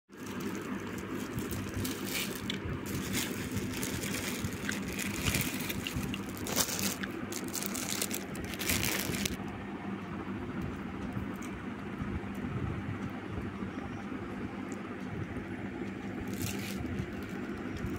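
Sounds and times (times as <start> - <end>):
plastic packets crinkling: 0.1 - 9.4, 16.2 - 17.9
steady low hum: 0.1 - 17.9.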